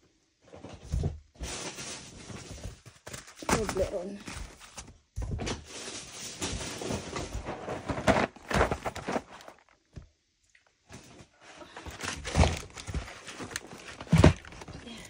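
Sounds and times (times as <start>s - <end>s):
packaging rustling: 1.4s - 9.9s, 11.7s - 15.0s.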